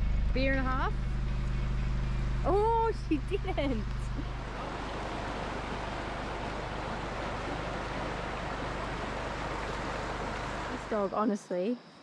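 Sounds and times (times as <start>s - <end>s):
river rapid rushing water: 4.2s - 11.1s.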